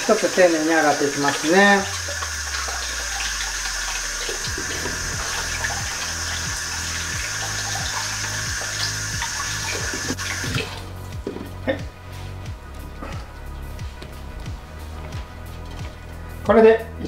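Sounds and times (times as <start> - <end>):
water splashing over fruit: 0.0 - 11.0
tap running into bowl of water: 0.8 - 11.5.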